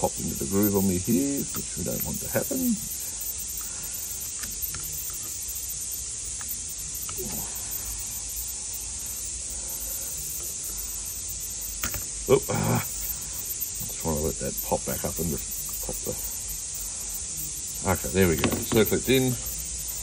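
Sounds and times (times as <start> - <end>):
background hiss: 0.0 - 20.0
small metallic clicks: 3.4 - 5.7.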